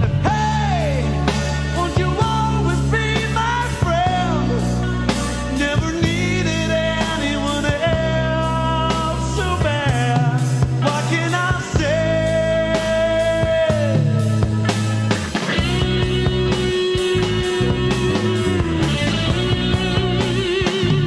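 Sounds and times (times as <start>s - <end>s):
rock band playing: 0.0s - 21.0s.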